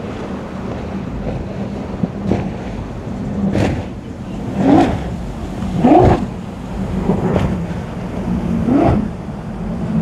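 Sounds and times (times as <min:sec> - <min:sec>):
hulls splashing on waves: 0:00.0 - 0:10.0
powerboat engines running: 0:00.0 - 0:10.0.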